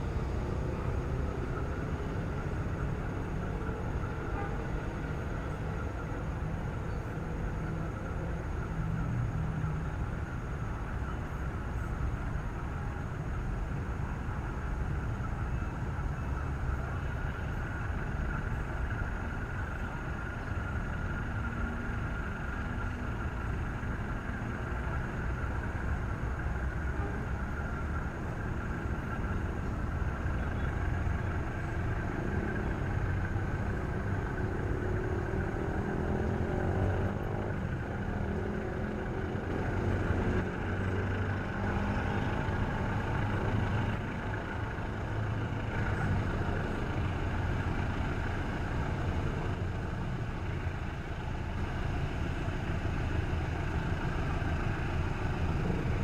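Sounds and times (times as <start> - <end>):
diesel locomotive engine rumbling: 0.0 - 56.0.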